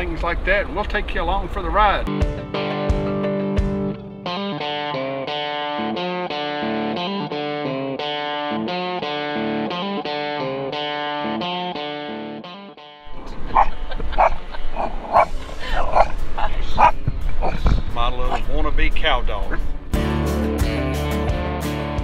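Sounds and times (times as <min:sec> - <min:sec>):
plucked guitar music: 0:02.1 - 0:18.5, 0:19.3 - 0:22.0
vehicle rumbling on dirt road: 0:13.1 - 0:20.0
small dog barking: 0:13.5 - 0:17.6.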